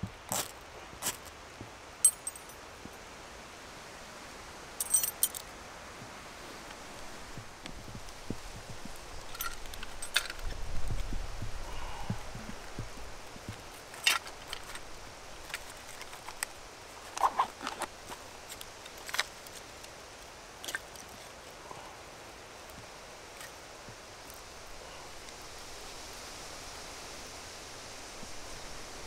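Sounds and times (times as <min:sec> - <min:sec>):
faint steady hiss: 0:00.0 - 0:29.0
wooden sticks clacking together: 0:09.2 - 0:10.6.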